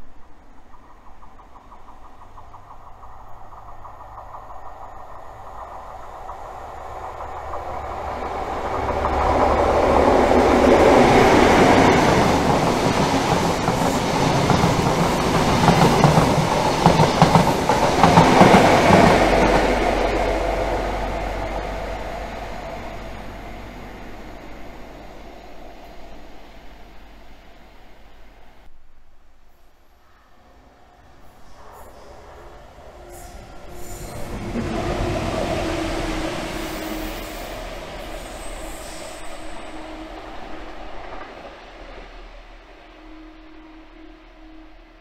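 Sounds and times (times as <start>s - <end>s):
diesel train passing: 0.0s - 28.7s, 30.4s - 45.0s
wheels clacking over rail joints: 0.7s - 25.9s.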